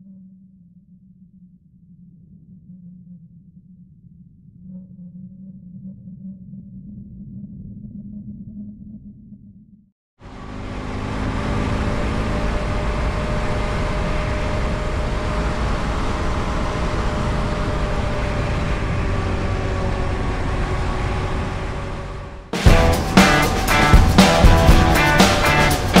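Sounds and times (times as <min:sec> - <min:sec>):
motorcycle engine cruising: 0:10.2 - 0:26.0
road noise: 0:10.2 - 0:26.0
music: 0:22.5 - 0:26.0.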